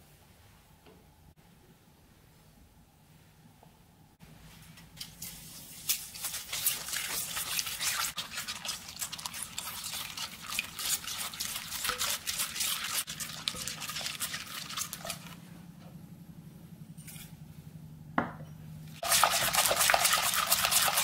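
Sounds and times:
spatula scraping in a bowl: 5.2 - 15.4, 19.0 - 21.0.

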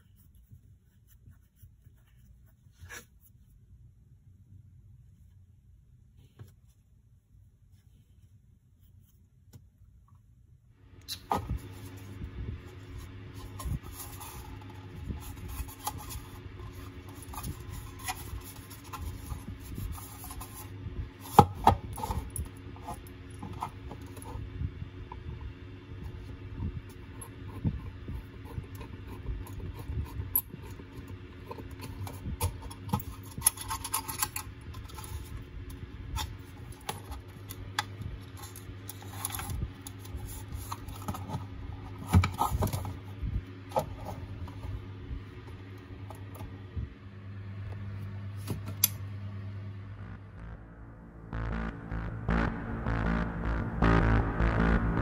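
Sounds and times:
steady low hum: 0.0 - 55.0.

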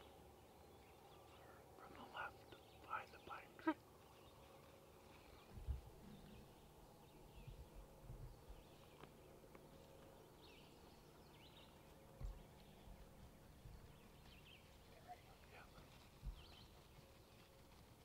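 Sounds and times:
soft low thumps: 5.5 - 6.5, 7.4 - 9.1, 11.7 - 14.6, 16.2 - 16.7.

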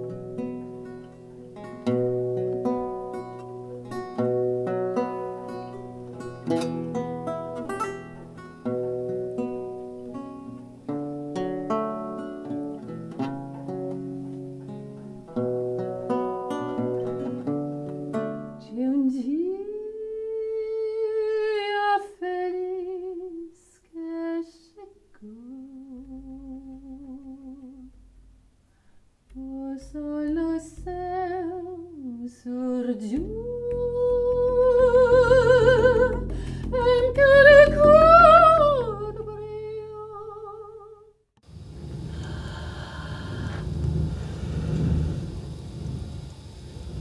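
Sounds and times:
guitar notes: 0.0 - 18.8, 33.0 - 40.2
lyric singing with vibrato: 32.5 - 40.9.

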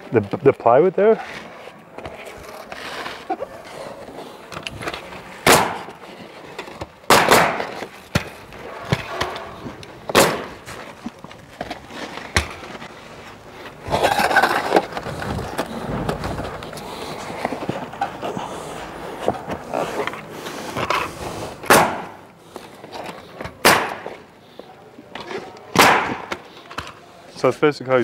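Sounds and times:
nail gun firing: 5.4 - 5.9, 7.1 - 7.6, 10.1 - 10.5, 21.7 - 22.1, 23.6 - 24.1, 25.8 - 26.3.

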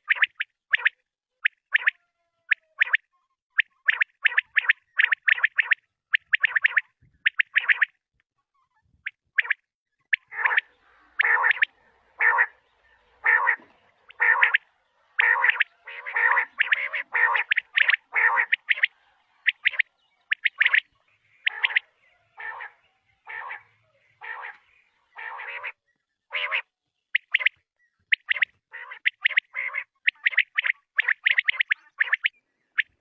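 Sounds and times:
quail calling: 9.4 - 33.0.

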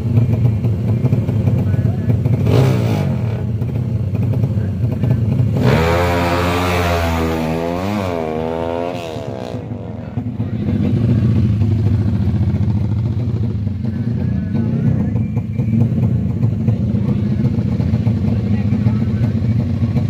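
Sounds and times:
motorcycle engine revving: 0.0 - 20.0
motorcycle engine running low: 0.0 - 20.0.

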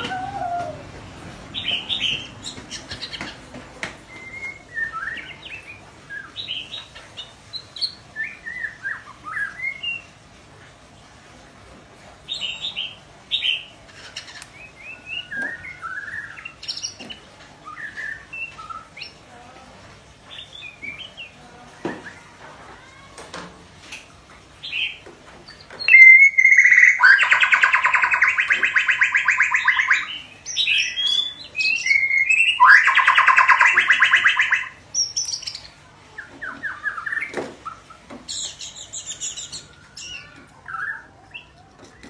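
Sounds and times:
bird chirps and whistles: 25.8 - 35.6.

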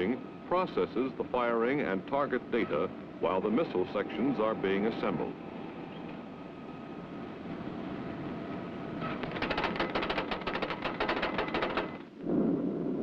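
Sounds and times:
steady hum: 0.0 - 13.0
rapid mechanical clicking: 9.0 - 12.1.

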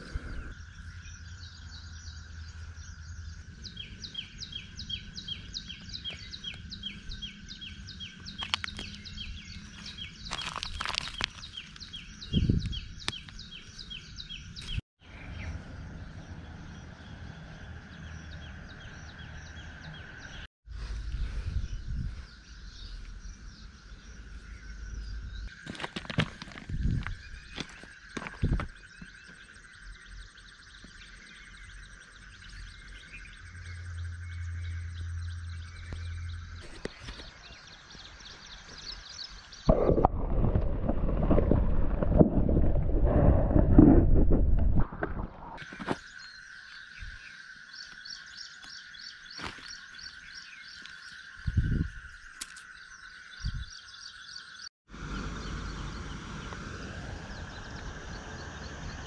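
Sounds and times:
birds chirping: 0.0 - 41.6, 45.2 - 59.0
insect chorus: 0.0 - 41.6, 45.6 - 59.0
low hum: 31.4 - 37.2, 54.9 - 59.0
low rumble: 39.7 - 45.6.

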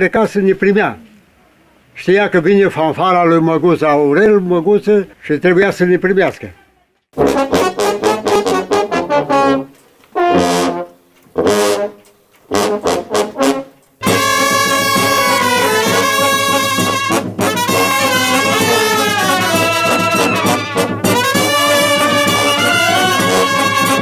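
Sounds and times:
baritone horn solo: 7.2 - 24.0
brass band playing: 7.2 - 24.0.

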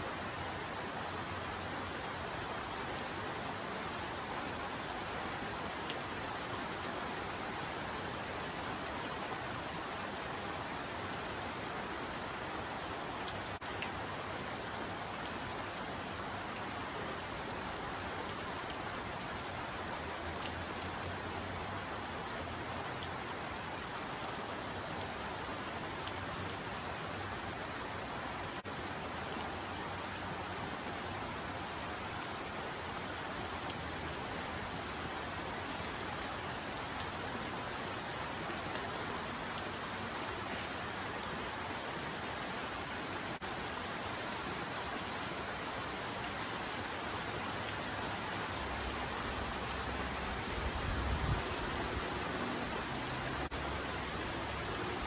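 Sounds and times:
steady rain: 0.0 - 55.0
raindrop ticks: 12.0 - 14.0, 14.8 - 21.2.

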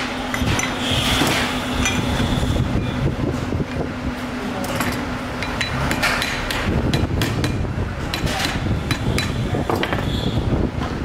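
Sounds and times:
hammer tapping metal: 4.8 - 10.0.

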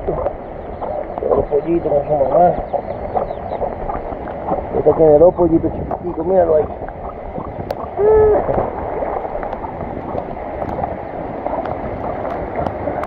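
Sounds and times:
storm wind: 0.0 - 13.0
rain: 7.7 - 13.0.

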